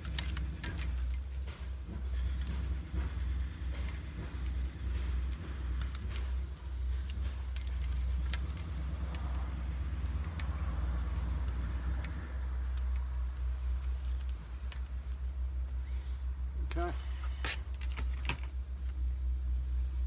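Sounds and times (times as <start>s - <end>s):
plastic valves clicking and rattling: 0.0s - 15.3s.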